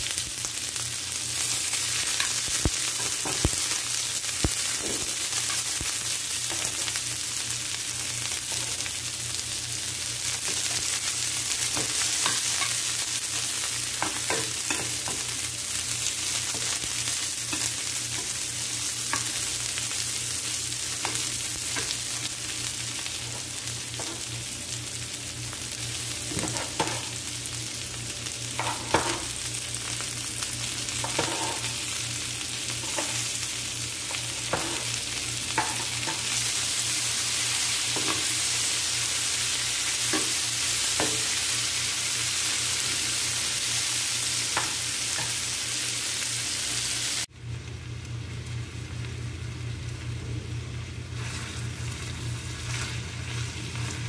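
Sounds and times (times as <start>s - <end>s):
onions sizzling in hot oil: 0.0s - 54.0s
spatula scraping a pan: 31.0s - 31.7s.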